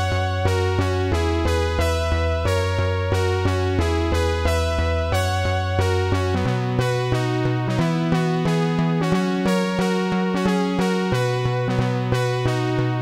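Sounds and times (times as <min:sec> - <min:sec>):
synthesizer and electric piano music: 0:00.0 - 0:13.0.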